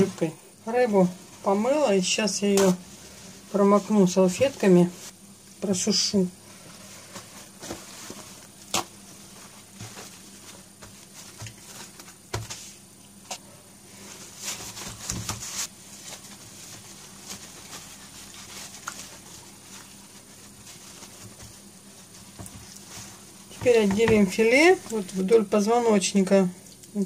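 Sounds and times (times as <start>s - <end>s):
paper towels crinkling: 0.0s - 25.9s
hands patting fish dry: 16.3s - 25.0s.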